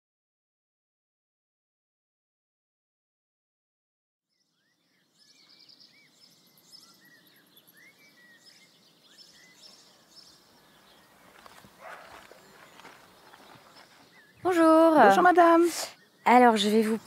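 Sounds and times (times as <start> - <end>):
bird chirps: 4.3 - 17.0.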